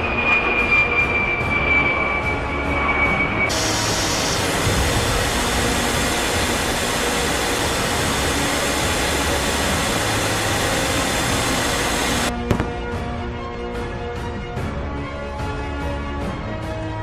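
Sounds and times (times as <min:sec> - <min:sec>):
jet aircraft roar: 0:00.0 - 0:13.2.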